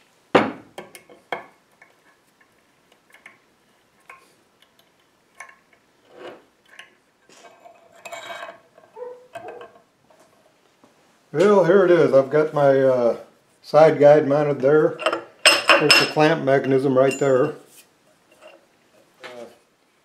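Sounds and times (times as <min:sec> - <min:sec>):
metal scraping: 0:06.0 - 0:10.5.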